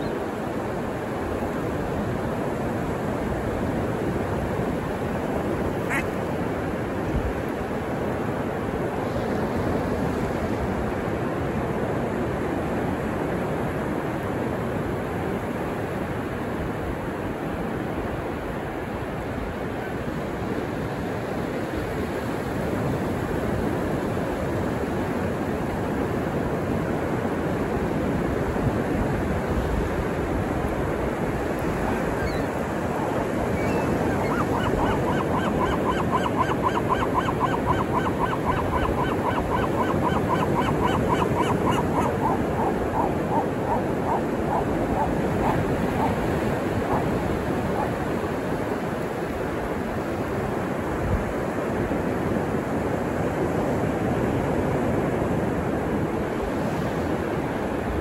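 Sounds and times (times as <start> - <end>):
ocean waves washing on beach: 0.0 - 58.0
gull squawking: 5.8 - 6.2, 33.5 - 48.0.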